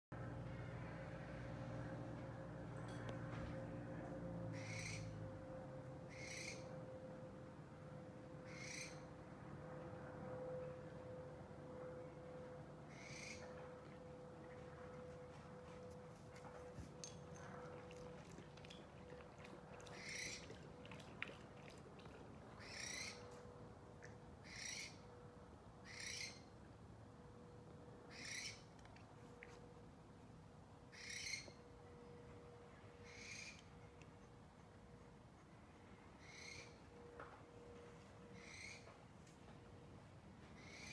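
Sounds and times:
owl screeching: 4.5s - 5.2s, 6.1s - 6.7s, 8.4s - 9.1s, 12.9s - 13.5s, 20.0s - 20.4s, 22.6s - 23.2s, 24.4s - 25.0s, 25.8s - 26.5s, 28.1s - 28.6s, 30.9s - 31.6s, 33.0s - 33.6s, 36.2s - 36.8s, 38.4s - 38.9s, 40.6s - 40.9s.

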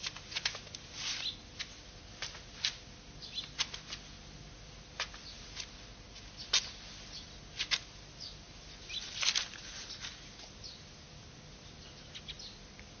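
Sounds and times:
cloth rustling: 0.0s - 4.2s, 4.9s - 8.0s, 8.9s - 10.6s.

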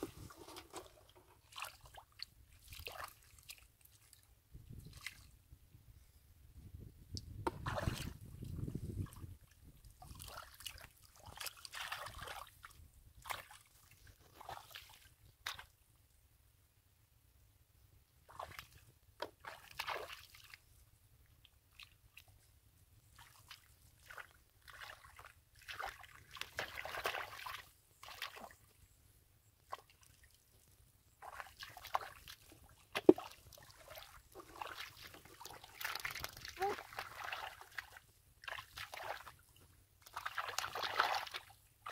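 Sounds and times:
hands splashing in muddy water: 0.0s - 4.2s, 7.4s - 9.3s, 10.0s - 15.7s, 18.3s - 20.6s, 23.1s - 28.7s, 31.2s - 41.9s.

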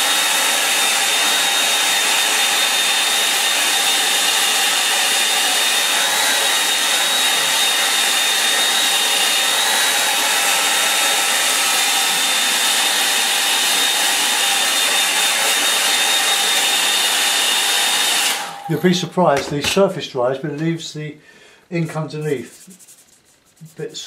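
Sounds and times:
hair dryer blowing: 0.0s - 18.9s.

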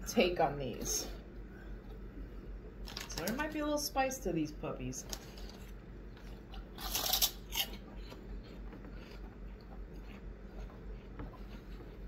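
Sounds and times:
pork rinds crunching: 5.1s - 10.3s
chewing: 5.2s - 12.0s.

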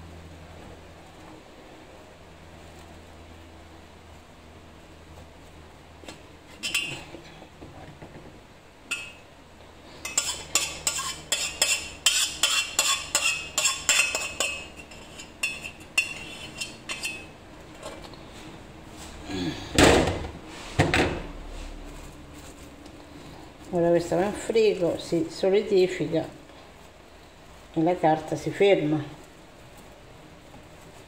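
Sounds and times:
spoon scraping metal pot: 6.6s - 7.1s, 8.9s - 9.2s, 10.0s - 17.4s.

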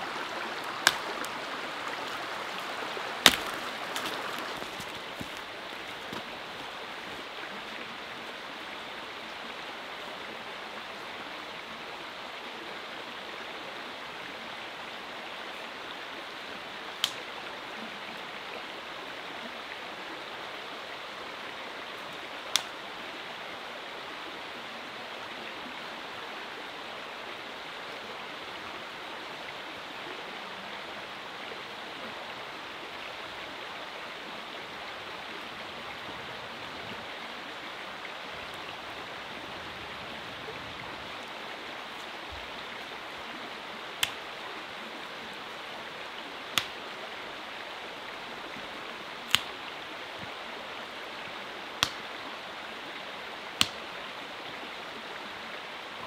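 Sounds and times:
small river flowing: 0.0s - 56.0s
dead branch snapping: 0.6s - 1.4s, 3.2s - 6.3s, 17.0s - 17.2s, 22.5s - 22.8s, 44.0s - 44.2s, 46.5s - 46.8s, 49.3s - 49.6s, 51.8s - 52.1s, 53.6s - 53.8s.

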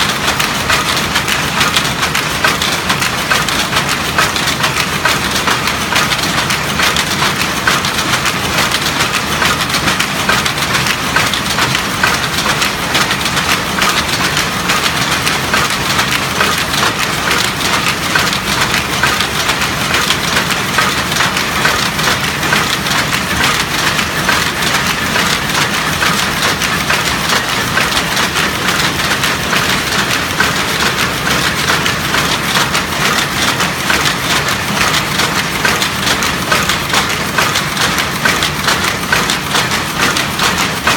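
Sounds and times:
weaving loom clattering: 0.0s - 40.9s.

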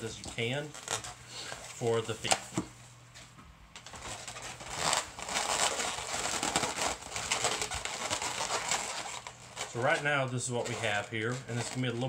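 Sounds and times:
balloons squeaking and crinkling: 0.0s - 2.4s, 3.8s - 12.0s.

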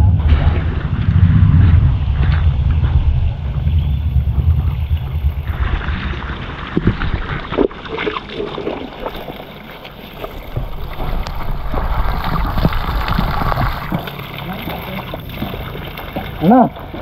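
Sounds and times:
wind rumbling on microphone: 0.0s - 17.0s
water pouring onto stones: 5.1s - 17.0s.

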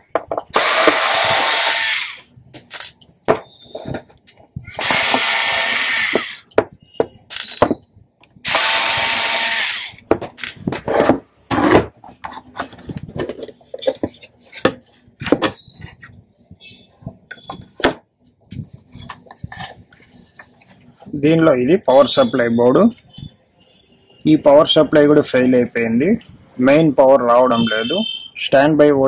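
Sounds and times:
knocks and clicks of handled metal: 0.0s - 0.6s.

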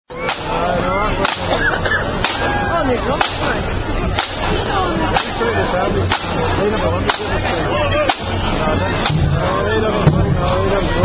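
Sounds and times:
wavering voices: 0.1s - 11.0s
sharp drum strikes: 1.2s - 1.6s, 2.2s - 2.6s, 3.2s - 5.4s, 6.0s - 6.5s, 7.1s - 7.5s, 8.1s - 10.6s.

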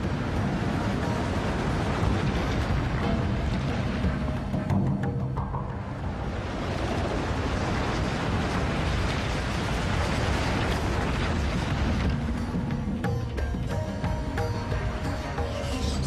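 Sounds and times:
music: 0.0s - 7.5s, 11.0s - 16.0s
boulder rolling rumble: 0.0s - 16.0s.

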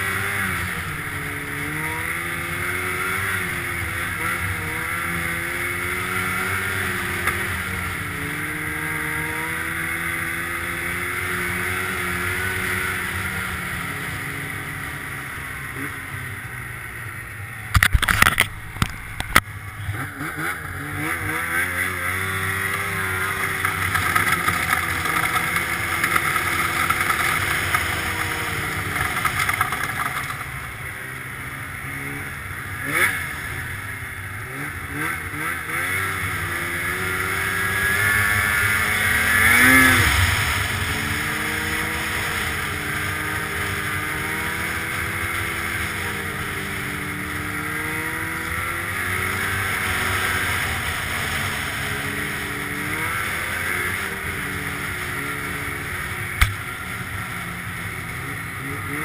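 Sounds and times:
snowmobile engine running: 0.0s - 59.0s.

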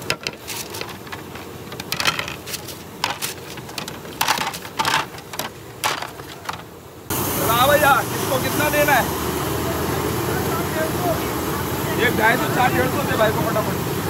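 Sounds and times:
utensils and containers clattering: 0.0s - 6.7s.

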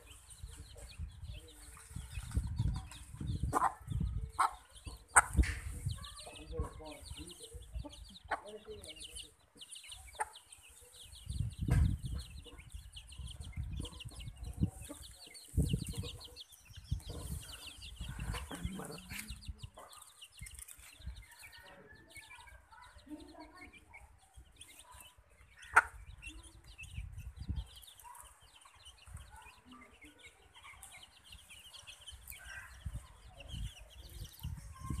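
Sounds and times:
chicks peeping: 0.0s - 35.0s
hen clucking: 2.6s - 9.2s, 13.4s - 20.0s, 25.5s - 26.3s
low rumbling thumps: 11.3s - 12.4s.

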